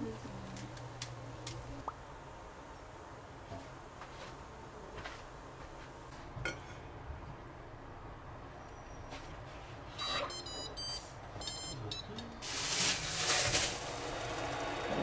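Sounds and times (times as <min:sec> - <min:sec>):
short electronic beeps: 0:10.0 - 0:12.1.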